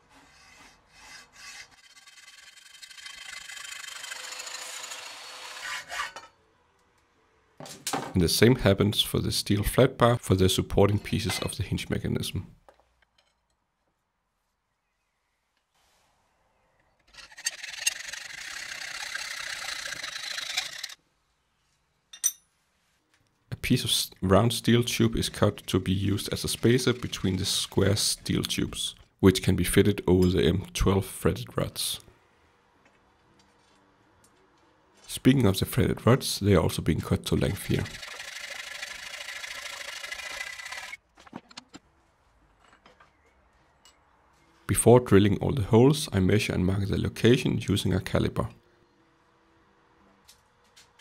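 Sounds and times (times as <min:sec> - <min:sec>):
hacksaw cutting steel: 0:00.0 - 0:06.4, 0:17.1 - 0:21.0, 0:25.2 - 0:28.2, 0:37.4 - 0:41.0.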